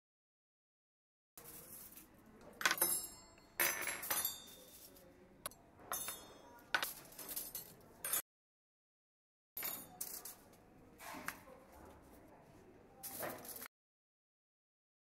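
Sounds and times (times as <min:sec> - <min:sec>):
crockery and glasses clinking: 0:02.6 - 0:08.2, 0:09.6 - 0:10.4.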